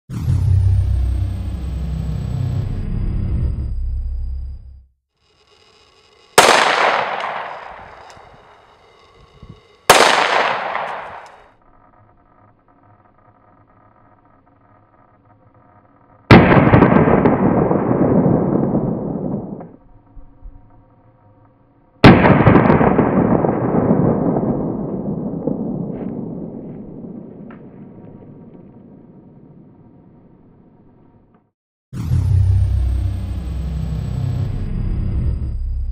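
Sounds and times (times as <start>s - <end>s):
pistol shots echoing: 6.4s - 8.2s, 9.9s - 11.4s
slowed pistol shot boom: 6.4s - 8.7s, 9.5s - 11.4s, 16.3s - 19.8s, 22.0s - 29.5s.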